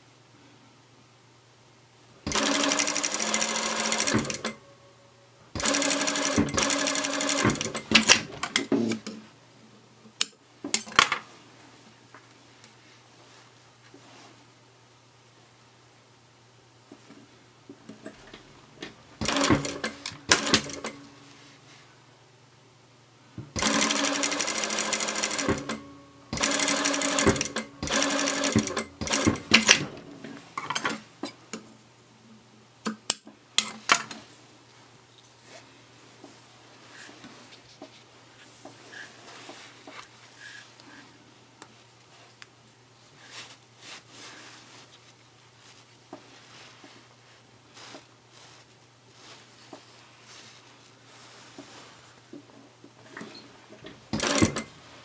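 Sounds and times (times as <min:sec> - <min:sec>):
sewing machine stitching: 0:02.3 - 0:04.6, 0:05.6 - 0:09.0, 0:18.0 - 0:21.1, 0:23.5 - 0:30.1, 0:53.1 - 0:54.8
fabric rustling: 0:34.2 - 0:52.3.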